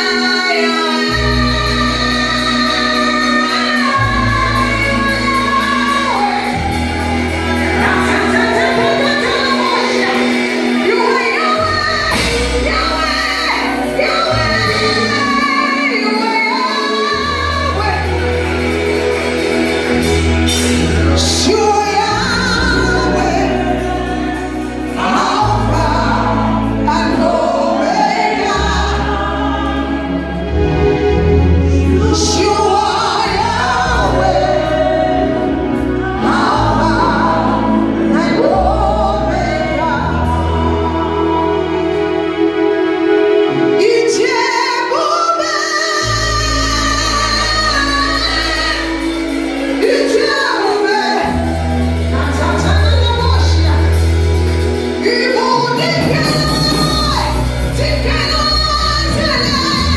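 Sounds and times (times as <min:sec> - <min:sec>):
held bass notes: 0:00.0 - 0:44.6
instrumental accompaniment: 0:00.0 - 0:59.9
woman singing gospel: 0:00.0 - 0:59.9.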